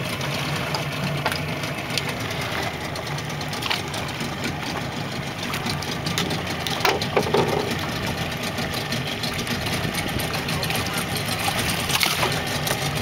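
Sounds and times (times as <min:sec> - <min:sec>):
small outboard motor idling: 0:00.0 - 0:13.0
net splashing into water: 0:11.8 - 0:12.4.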